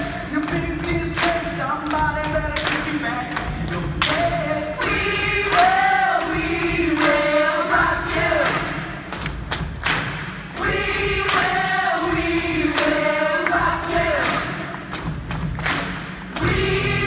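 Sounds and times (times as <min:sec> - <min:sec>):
choir singing: 0:04.2 - 0:09.1, 0:10.5 - 0:15.1, 0:16.2 - 0:17.0.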